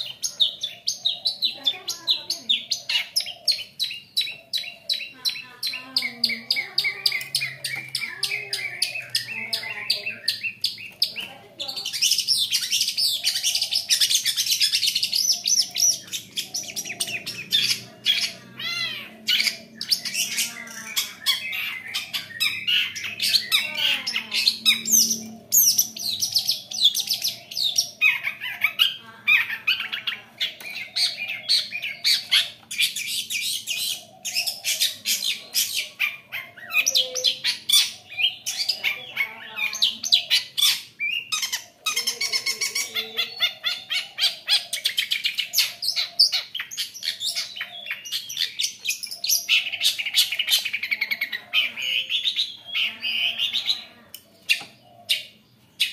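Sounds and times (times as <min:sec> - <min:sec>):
shrike singing chattering song: 0:00.0 - 0:55.9.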